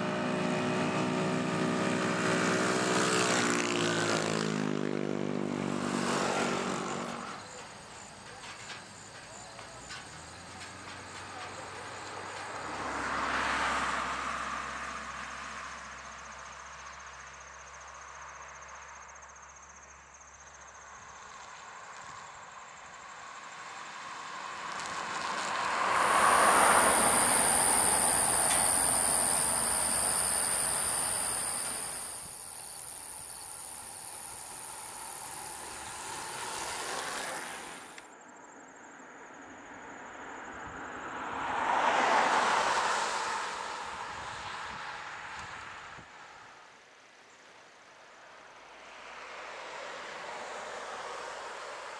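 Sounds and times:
cars passing: 0.0 - 16.0, 23.3 - 38.0, 41.0 - 46.3
steady high hiss: 7.1 - 12.8, 25.7 - 38.1.

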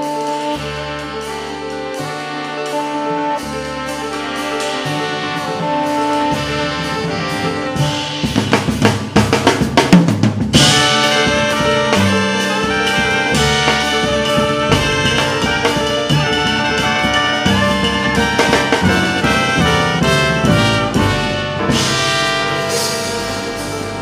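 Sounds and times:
jazz ensemble playing: 0.0 - 24.0
drum fill: 3.8 - 24.0
horns playing held chord: 10.6 - 24.0.

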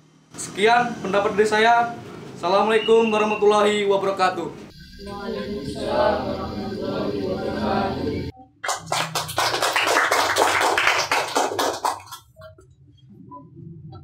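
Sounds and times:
voices answering in unison: 4.7 - 8.3
applause: 8.6 - 12.3.

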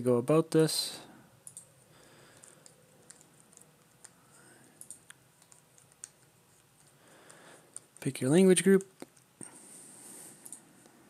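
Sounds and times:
computer mouse clicks: 1.4 - 8.0, 10.4 - 11.0.

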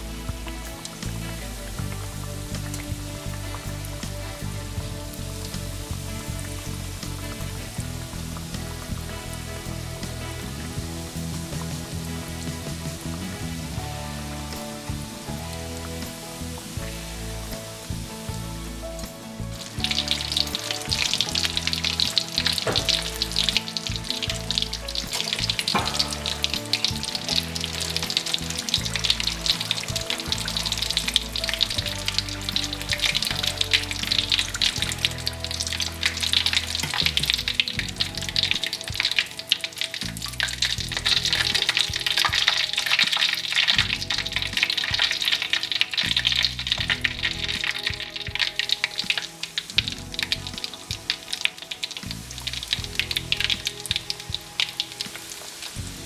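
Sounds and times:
fish deep-frying in oil: 19.1 - 56.0.

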